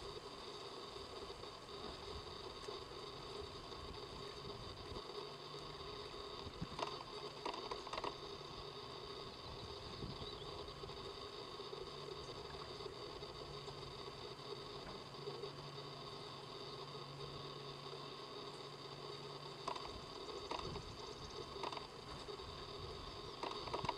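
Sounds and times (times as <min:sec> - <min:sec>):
faint steady hum: 0:00.0 - 0:23.9
soft rustles and clicks in nest: 0:04.4 - 0:08.5, 0:19.3 - 0:23.9.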